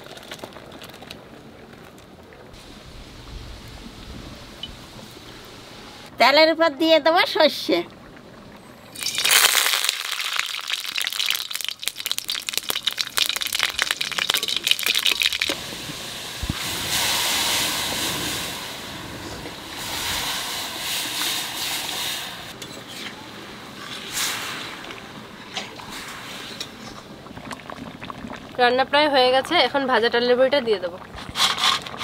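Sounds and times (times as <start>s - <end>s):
mustard seeds popping in oil: 9.0s - 15.6s
dal sizzling and hissing: 9.0s - 27.2s.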